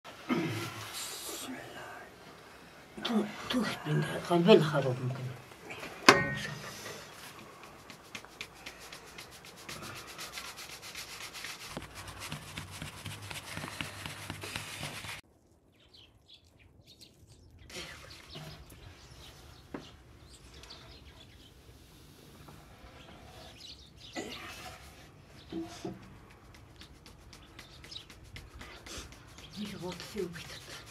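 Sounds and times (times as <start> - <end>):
hands kneading dough in metal basin: 4.0 - 15.2, 24.3 - 30.9
metal basin knock: 6.1 - 6.7.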